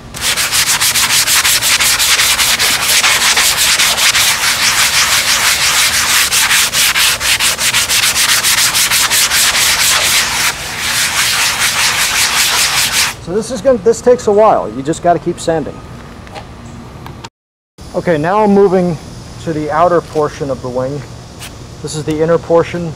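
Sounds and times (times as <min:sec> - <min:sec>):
sanding block scratching: 0:00.2 - 0:13.2.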